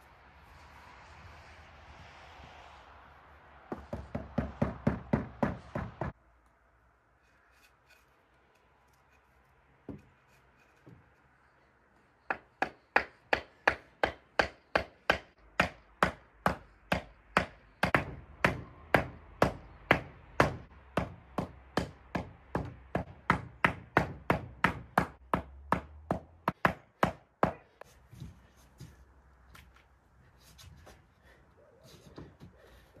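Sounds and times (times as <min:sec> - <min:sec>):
hammer striking wooden boards: 0:03.7 - 0:06.2, 0:12.3 - 0:27.8.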